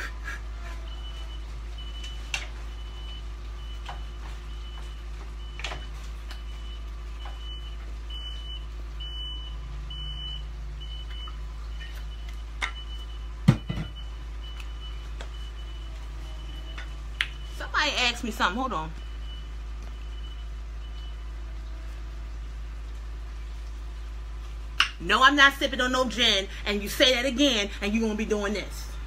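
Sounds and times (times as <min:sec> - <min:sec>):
reversing alarm beeping: 0:00.0 - 0:21.6.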